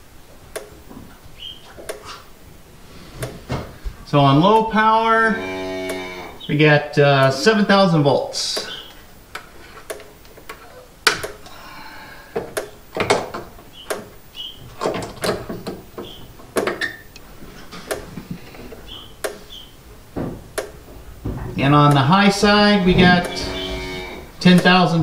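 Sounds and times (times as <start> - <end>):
sharp clicks and knocks: 12.4 - 14.1, 14.8 - 19.4, 20.1 - 23.7.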